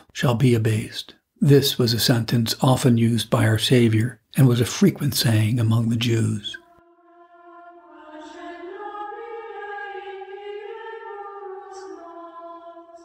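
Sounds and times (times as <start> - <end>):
choir singing held chord: 6.7 - 13.0.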